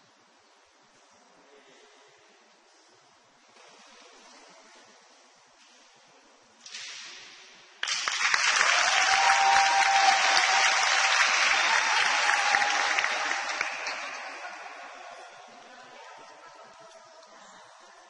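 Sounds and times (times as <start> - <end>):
crowd applauding: 7.8 - 15.7.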